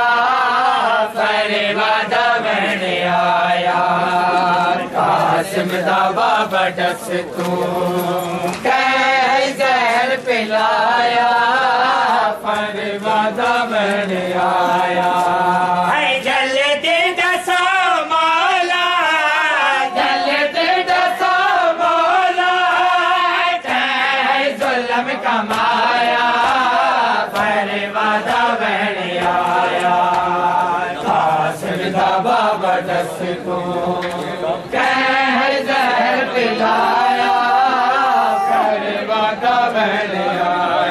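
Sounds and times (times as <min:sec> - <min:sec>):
men chanting a lament: 0:00.0 - 0:40.9
hands slapping chests: 0:25.4 - 0:28.5.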